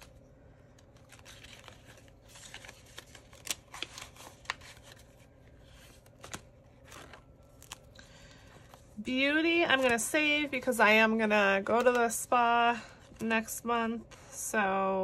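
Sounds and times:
paper banknotes rustling: 0.8 - 8.8.

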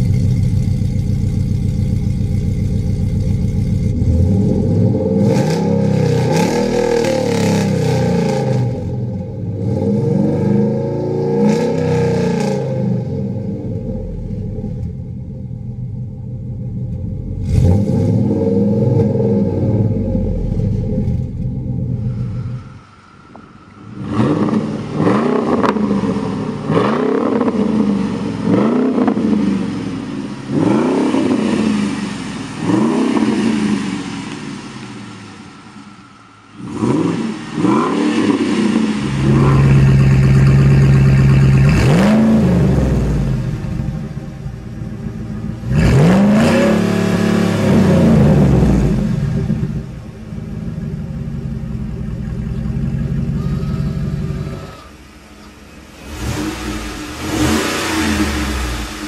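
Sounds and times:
engine revving through exhaust: 0.0 - 59.0.

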